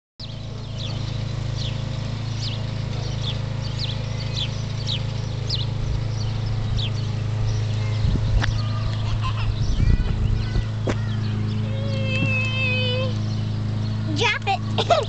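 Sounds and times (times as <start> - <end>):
birds chirping: 0.2 - 15.0
steady low hum: 0.2 - 15.0.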